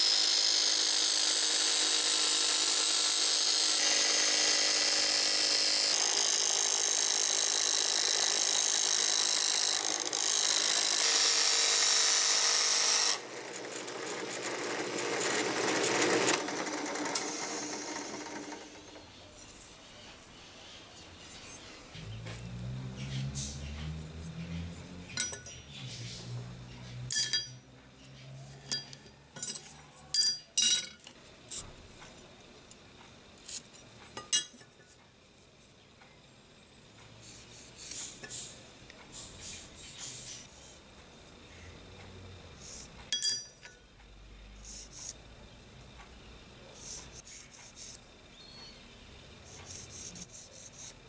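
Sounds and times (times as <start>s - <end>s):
steel pieces clinking on steel plate: 25.2s - 25.5s, 27.1s - 27.6s, 28.6s - 31.1s, 34.2s - 34.6s, 43.1s - 43.8s.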